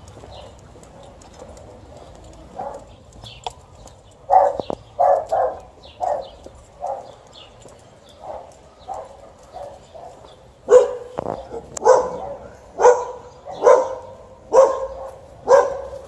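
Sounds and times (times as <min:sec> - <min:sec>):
dogs barking angrily: 0:00.0 - 0:03.2, 0:04.0 - 0:16.0.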